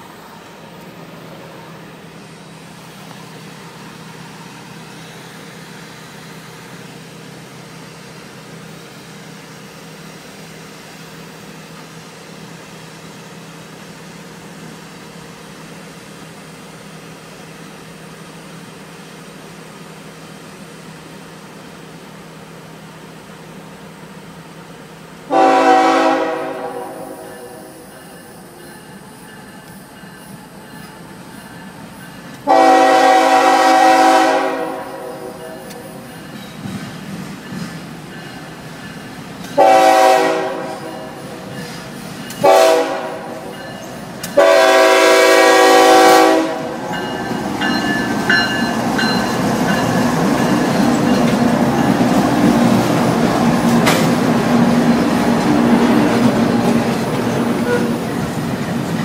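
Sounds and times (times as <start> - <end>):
locomotive air horn blast: 25.3 - 27.8, 32.4 - 35.8, 39.6 - 41.4, 42.4 - 43.5, 44.3 - 46.8, 57.6 - 58.0.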